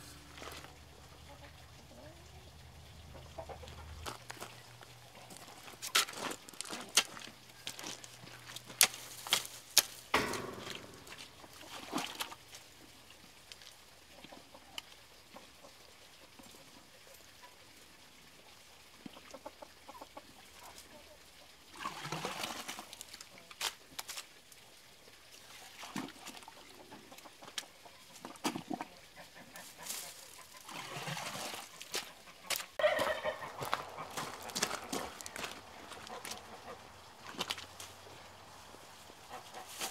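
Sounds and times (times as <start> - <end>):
chickens clucking: 0.0 - 5.6, 10.2 - 12.4, 14.1 - 17.6, 19.0 - 21.2, 26.5 - 39.9
digging tool scraping gravelly soil: 5.7 - 10.1, 39.6 - 39.9.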